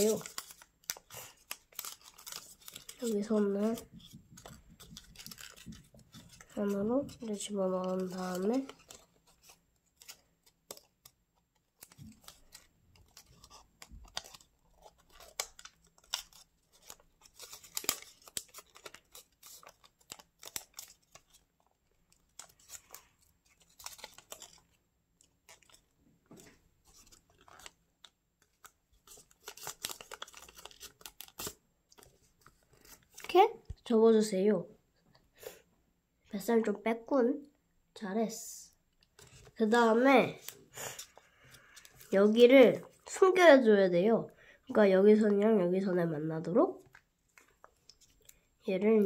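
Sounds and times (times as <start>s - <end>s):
paper being folded and creased: 0.0s - 33.8s, 39.1s - 43.7s.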